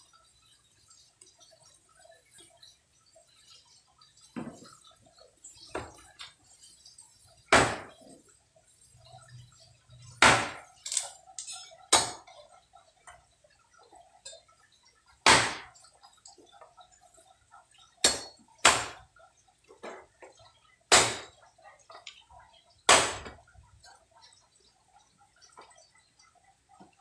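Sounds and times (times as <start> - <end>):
cleaver chopping wood: 10.2 - 10.6.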